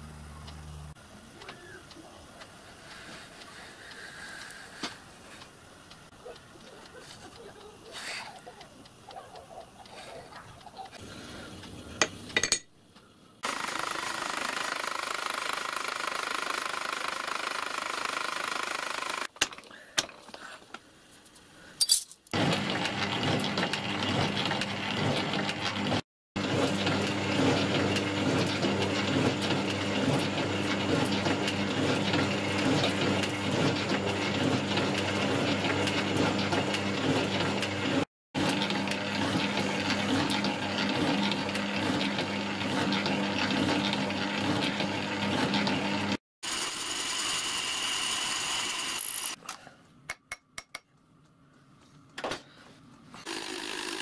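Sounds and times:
machine mechanical clatter: 13.4 - 19.4.

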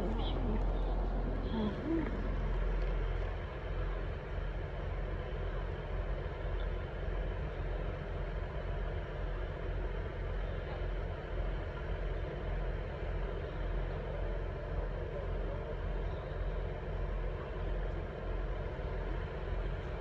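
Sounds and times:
station background noise: 0.0 - 3.3
engine idling: 0.0 - 20.0.

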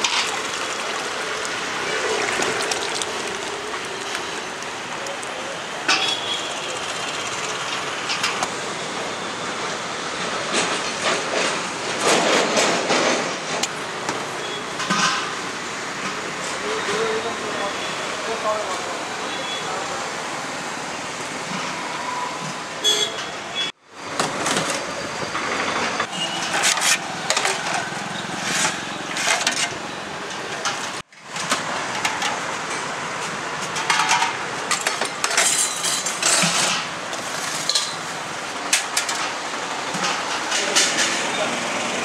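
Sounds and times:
street traffic: 0.0 - 42.0
metal pots and plates clinking: 33.7 - 36.9, 37.6 - 38.1.

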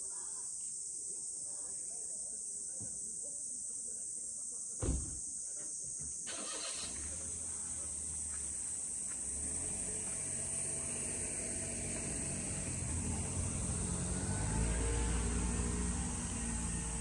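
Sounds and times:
insects droning: 0.0 - 17.0
thump: 4.8 - 5.3
low vehicle engine rumble: 6.3 - 17.0.

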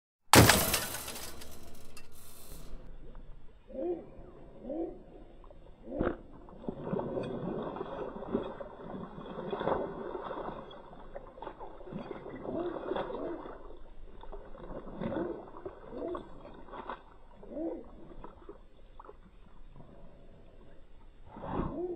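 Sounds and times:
dog splashing in muddy puddle: 5.9 - 20.2.

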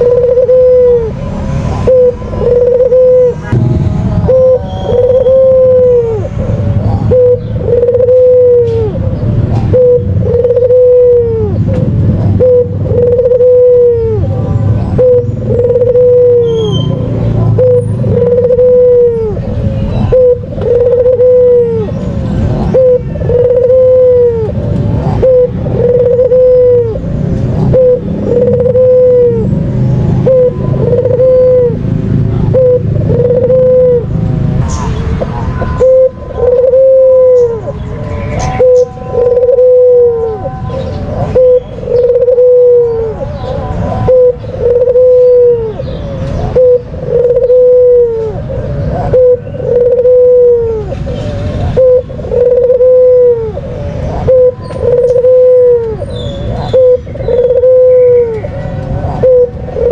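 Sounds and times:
steady low rumble: 0.0 - 7.8
dove cooing: 0.0 - 59.9.

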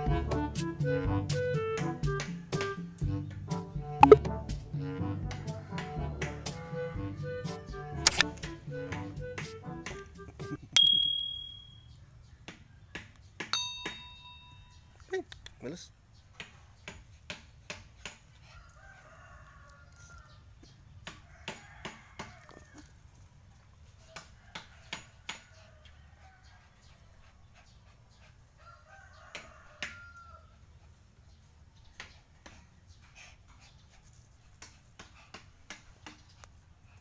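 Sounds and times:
sharp clicks and taps: 4.0 - 4.3, 8.1 - 8.3
faint rooster crowing: 5.5 - 7.7, 18.2 - 27.5, 28.1 - 31.0.

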